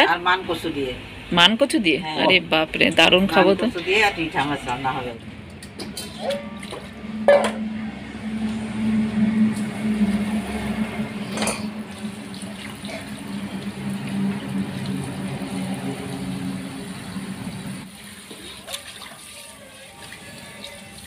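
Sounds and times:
tap water splashing into steel bowl: 18.2 - 20.8.

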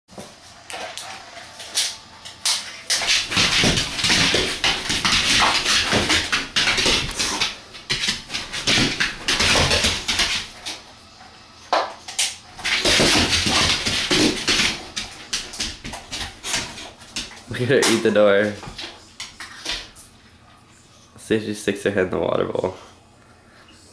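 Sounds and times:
dog claws scrabbling on floor: 2.4 - 10.8, 11.7 - 20.1.

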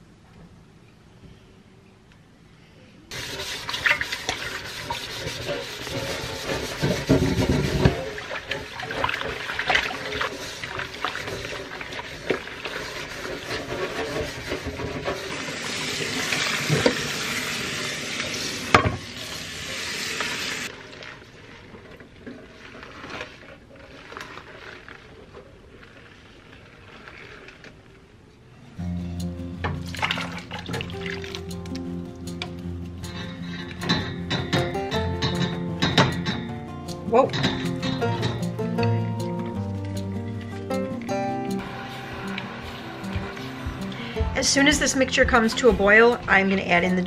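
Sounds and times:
wet cloth scrubbing pot: 3.1 - 28.2, 29.7 - 31.5, 41.6 - 47.0
metal pot knocking on sink: 33.8 - 36.6, 37.2 - 38.5.

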